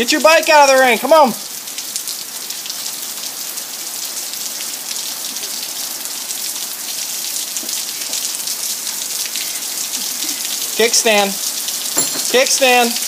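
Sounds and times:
heavy rain: 0.0s - 13.0s
drops ticking nearby: 4.4s - 13.0s.

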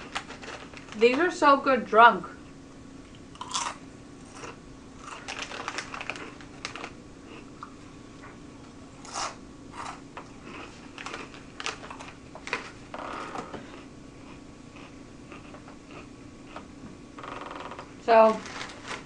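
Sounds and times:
plastic snack bag rustling: 0.0s - 1.2s, 4.3s - 7.4s, 10.4s - 12.8s, 18.1s - 19.0s
chips being crunched: 3.4s - 7.7s, 9.0s - 12.7s.

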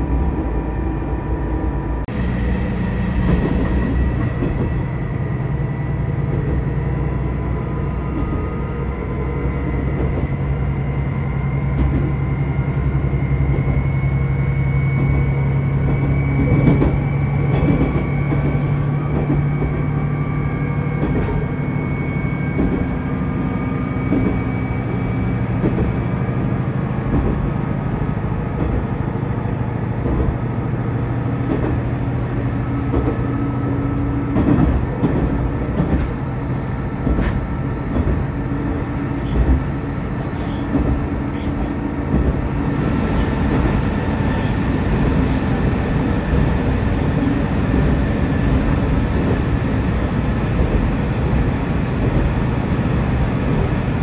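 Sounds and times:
diesel railcar engine droning: 0.0s - 54.0s
knocks from the track: 37.0s - 38.3s.

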